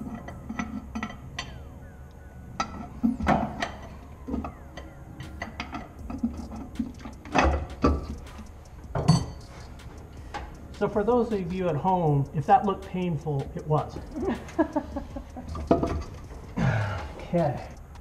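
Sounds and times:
hand tools knocking on metal: 5.2s - 17.8s.

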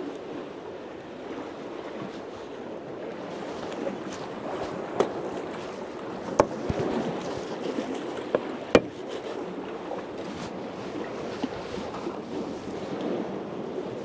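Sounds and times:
wind: 0.0s - 14.0s
water washing: 4.7s - 11.7s
knife chopping on wood: 8.4s - 9.0s.

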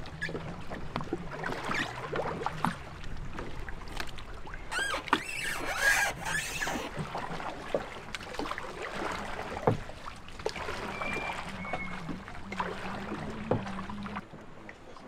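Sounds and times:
paddle splashing water: 0.0s - 15.0s
sharp knocks on boat: 6.9s - 14.4s.

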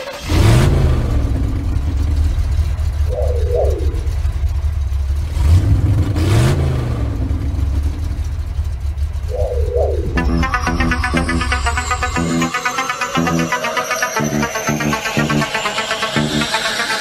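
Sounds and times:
car engine revving: 0.0s - 17.0s
electronic sweep: 1.0s - 4.8s, 9.2s - 17.0s.

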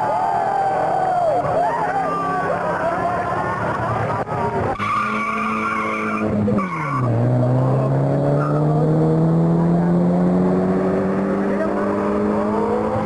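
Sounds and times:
racing car engine revving: 0.1s - 13.0s
tyres squealing: 4.6s - 7.3s.

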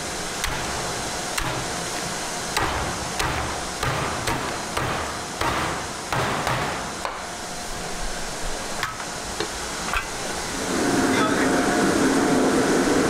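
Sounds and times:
cleaver chopping on wooden block: 2.6s - 7.2s.

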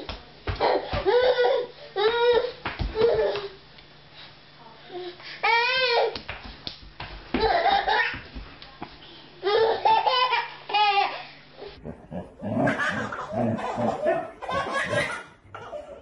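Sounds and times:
baby laughing: 12.0s - 16.0s.

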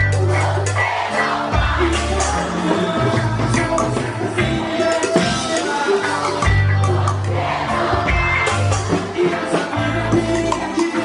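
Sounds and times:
song with strong bass line: 0.0s - 11.0s.

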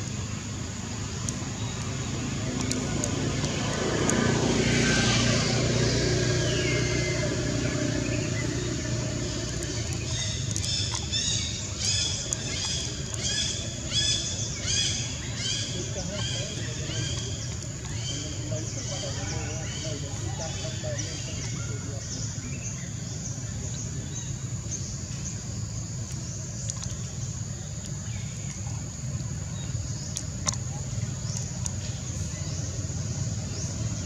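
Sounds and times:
passing vehicle engine: 1.0s - 11.4s.

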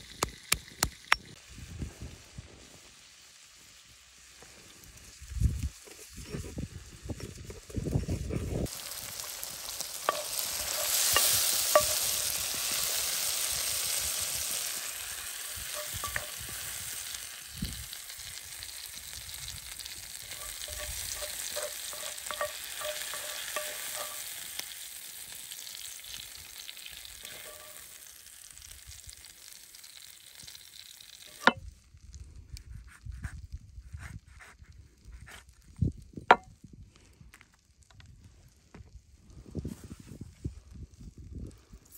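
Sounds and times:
oil popping and crackling: 0.0s - 1.4s, 3.5s - 39.1s
food sizzling in a frying pan: 0.0s - 31.7s.

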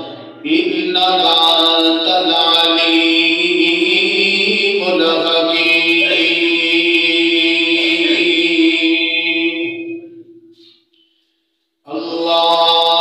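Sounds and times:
man chanting through loudspeakers: 11.9s - 13.0s.

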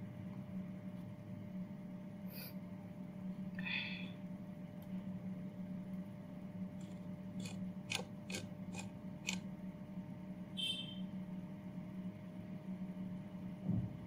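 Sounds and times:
steady low hum: 0.0s - 14.0s
sharp clicks: 6.8s - 9.4s.

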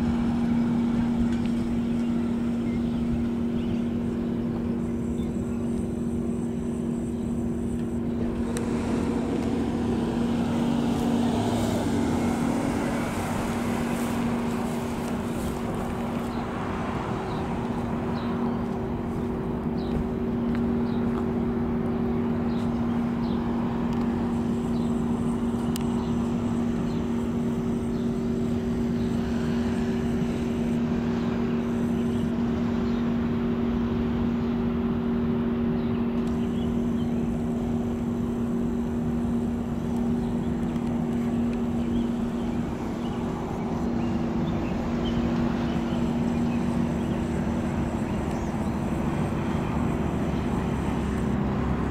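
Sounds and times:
car passing: 0.0s - 35.0s, 36.3s - 51.9s
steady low two-pitch hum: 0.0s - 51.9s.

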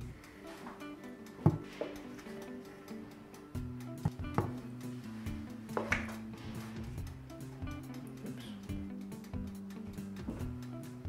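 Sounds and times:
guitar background music: 0.0s - 11.0s.

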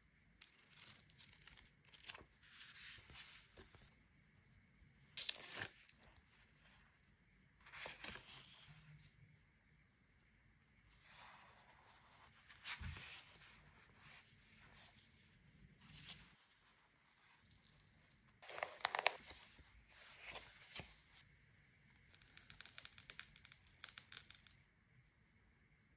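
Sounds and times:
paper rustling and crinkling: 7.6s - 8.8s, 15.9s - 21.2s
sticker peeled from backing: 17.4s - 19.3s, 22.1s - 24.6s.

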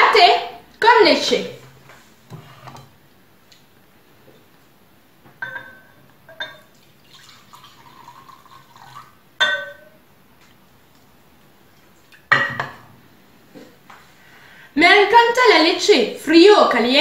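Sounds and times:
pan clinking against bowl: 5.4s - 6.7s, 9.4s - 10.0s
milk pouring into bowl: 6.6s - 9.2s.

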